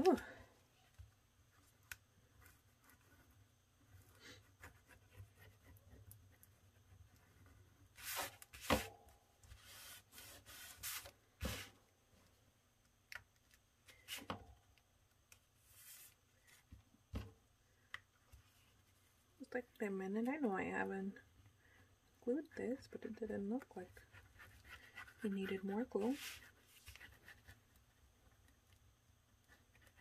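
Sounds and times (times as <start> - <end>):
paper rustling and rubbing: 7.4 - 8.9, 9.5 - 11.7, 15.6 - 16.7, 24.2 - 27.8.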